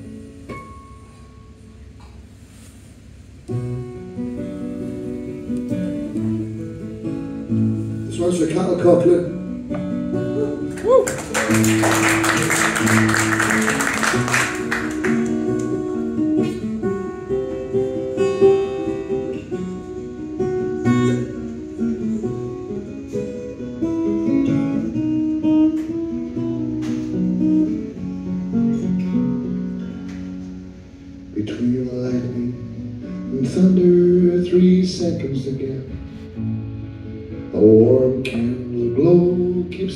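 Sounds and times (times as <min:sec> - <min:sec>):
acoustic guitar playing: 0:00.0 - 0:39.9.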